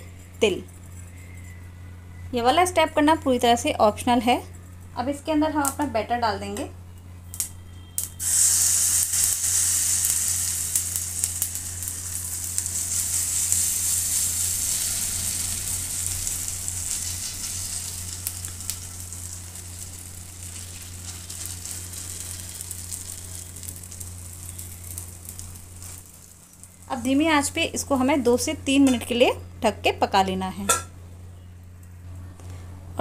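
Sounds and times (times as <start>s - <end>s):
batter sizzling in hot oil: 8.0s - 28.5s.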